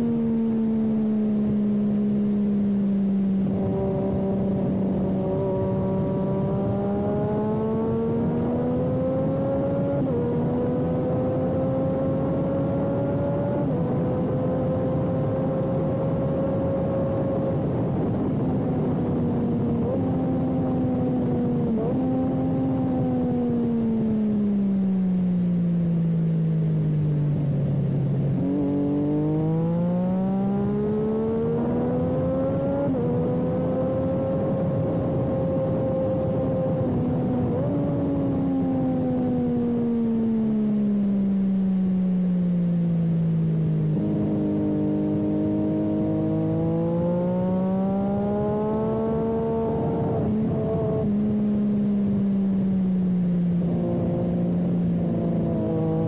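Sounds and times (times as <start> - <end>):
motorcycle engine revving: 0.0 - 24.2, 27.4 - 41.6, 42.7 - 56.0
wind rush: 15.8 - 21.8.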